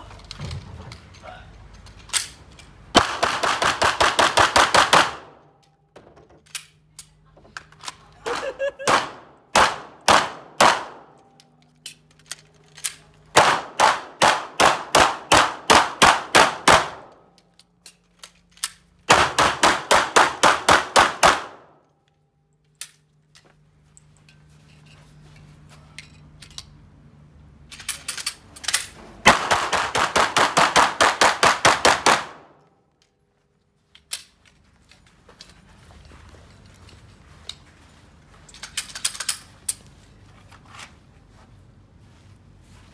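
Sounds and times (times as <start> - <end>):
handgun shots: 8.8 - 11.2, 13.4 - 17.2.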